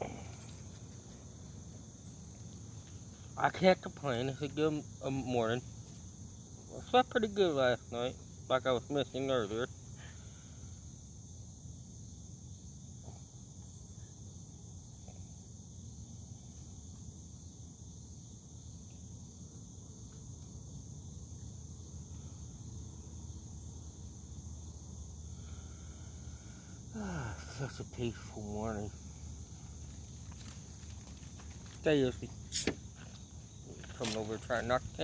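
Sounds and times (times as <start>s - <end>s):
insects chirring: 0.0s - 35.0s.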